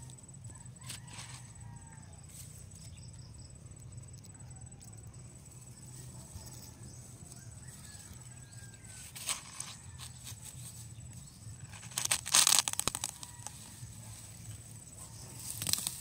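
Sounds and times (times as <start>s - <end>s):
knife cracking watermelon rind: 11.6s - 13.6s.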